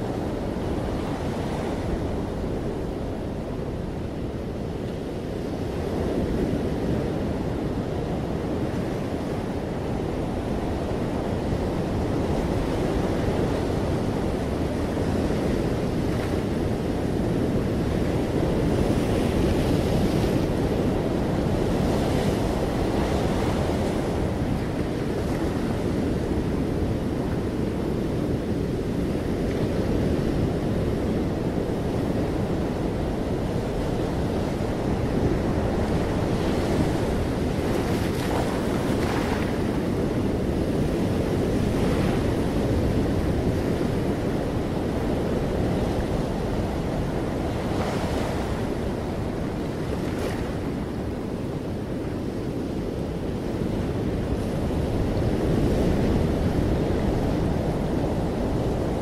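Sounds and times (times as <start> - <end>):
ocean surf breaking: 28.8 - 51.5.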